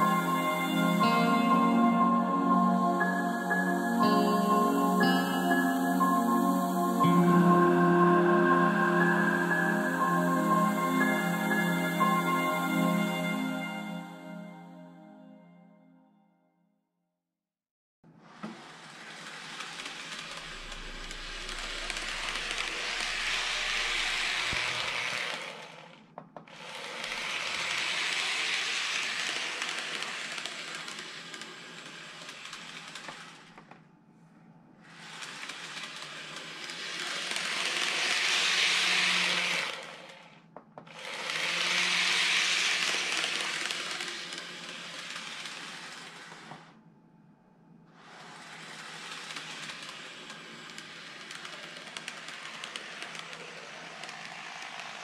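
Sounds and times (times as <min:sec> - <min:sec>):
model train whirring hiss: 0:18.5 - 0:25.8, 0:26.6 - 0:33.5, 0:34.8 - 0:40.2, 0:40.9 - 0:46.7, 0:48.0 - 0:55.0.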